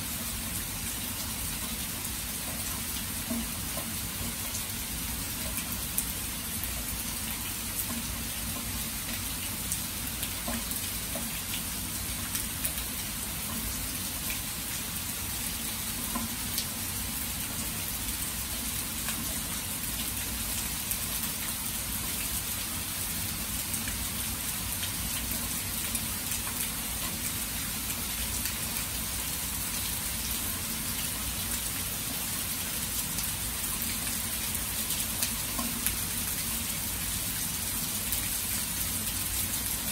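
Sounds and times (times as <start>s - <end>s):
rain falling: 0.0s - 39.9s
raindrop ticks: 2.4s - 4.6s, 10.2s - 12.8s, 16.1s - 16.7s, 34.9s - 36.4s.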